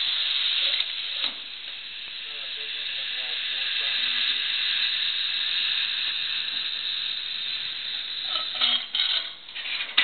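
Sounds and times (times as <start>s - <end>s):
machine running with high hiss: 0.0s - 10.0s
metal clanks: 8.3s - 10.0s.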